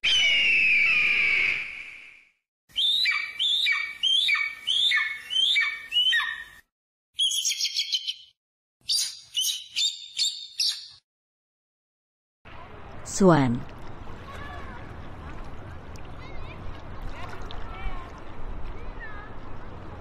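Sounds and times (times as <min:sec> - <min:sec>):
bird of prey crying: 0:02.7 - 0:06.6, 0:07.2 - 0:08.3
bird trill: 0:02.7 - 0:06.6, 0:07.2 - 0:11.0.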